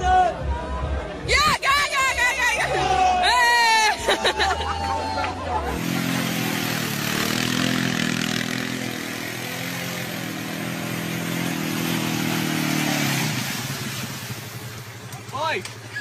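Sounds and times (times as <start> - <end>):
atv engine running: 4.6 - 16.0.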